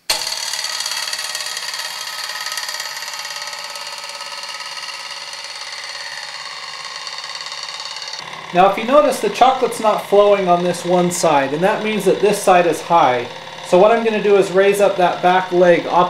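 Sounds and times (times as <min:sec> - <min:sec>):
fountain motor humming: 0:00.0 - 0:16.0.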